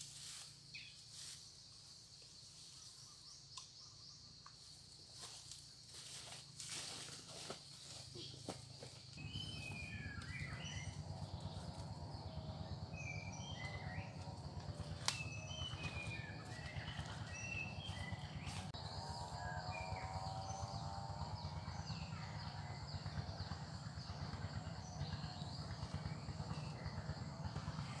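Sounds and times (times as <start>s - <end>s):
insect drone: 0.0s - 28.0s
birds chirping and whistling: 9.2s - 28.0s
low buzz: 9.2s - 28.0s.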